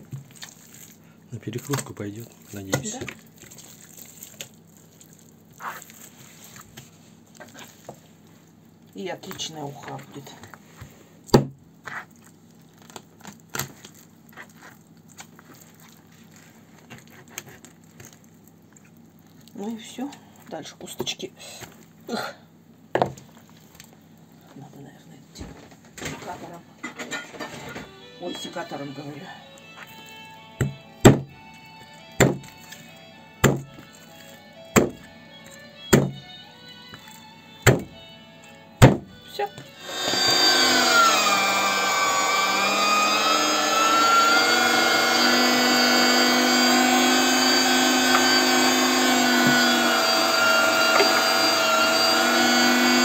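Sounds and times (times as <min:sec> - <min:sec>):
crinkling: 0:00.0 - 0:11.0, 0:11.8 - 0:22.1, 0:23.2 - 0:24.7, 0:31.4 - 0:37.7
background music: 0:27.4 - 0:41.9
knocks from fish being cut: 0:30.6 - 0:31.3, 0:32.2 - 0:32.6, 0:33.4 - 0:33.8, 0:34.7 - 0:35.0, 0:35.9 - 0:36.3, 0:37.6 - 0:38.0, 0:38.8 - 0:39.1
knife chopping bones: 0:30.6 - 0:32.8, 0:33.4 - 0:34.0, 0:34.7 - 0:36.3, 0:37.6 - 0:38.0, 0:38.8 - 0:39.1.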